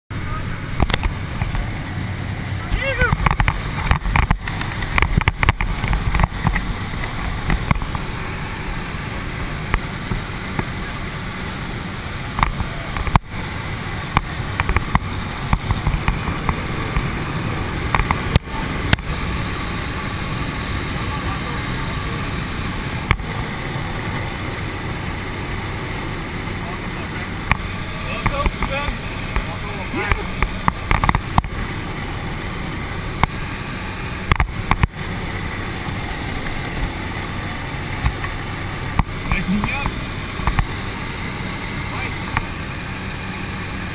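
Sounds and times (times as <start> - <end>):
plane engine drone in cabin: 0.1 - 43.9
gear clicks and knocks: 3.1 - 8.1.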